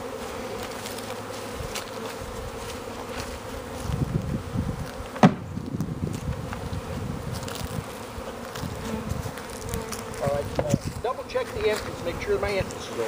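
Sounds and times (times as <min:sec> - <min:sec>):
honeybees buzzing: 0:00.0 - 0:13.0
sharp knock: 0:05.2 - 0:05.5
low bumps: 0:05.2 - 0:06.9.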